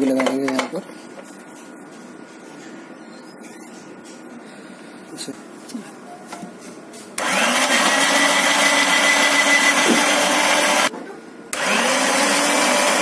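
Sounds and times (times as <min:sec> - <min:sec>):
electric grinder motor whining: 0:07.2 - 0:10.9, 0:11.5 - 0:13.0.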